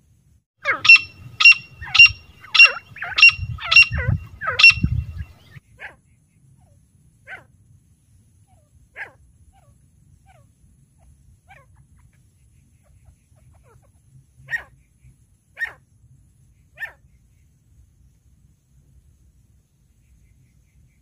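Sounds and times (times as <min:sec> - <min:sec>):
francolin sharp calls: 0:00.6 - 0:05.6.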